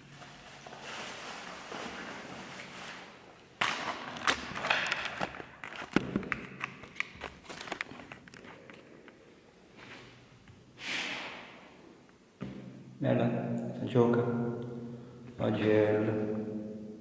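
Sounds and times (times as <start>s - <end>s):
foil rustling and crinkling: 0.2s - 3.4s.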